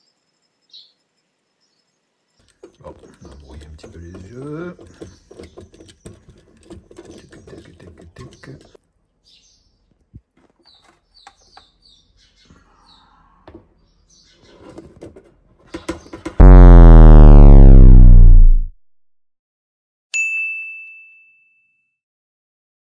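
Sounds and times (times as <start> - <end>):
tongs clicking and scraping: 2.4 - 8.8
falling pitch sound effect: 16.4 - 18.8.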